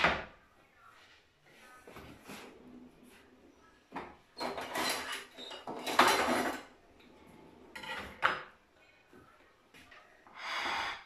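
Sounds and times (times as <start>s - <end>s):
cutlery rattling in a drawer: 4.4s - 6.7s.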